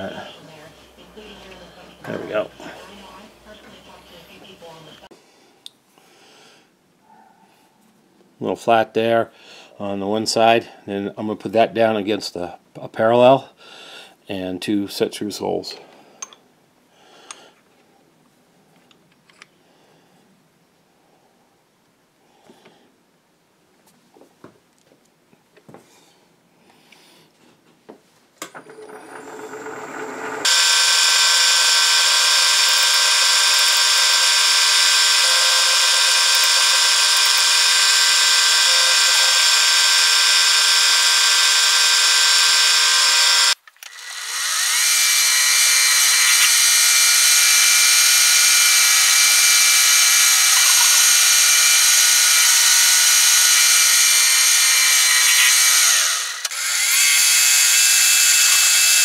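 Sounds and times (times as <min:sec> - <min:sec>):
milling machine whining: 0:28.5 - 0:59.0.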